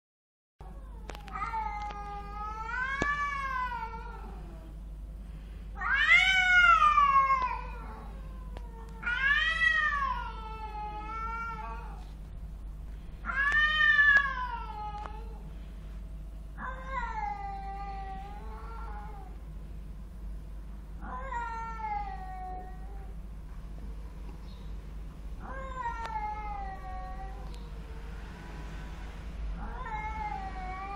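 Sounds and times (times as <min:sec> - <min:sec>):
cats yowling in a fight: 0:00.6 - 0:04.7, 0:05.8 - 0:12.0, 0:13.2 - 0:15.4, 0:16.6 - 0:19.4, 0:21.0 - 0:23.2, 0:25.4 - 0:28.3, 0:29.6 - 0:30.9.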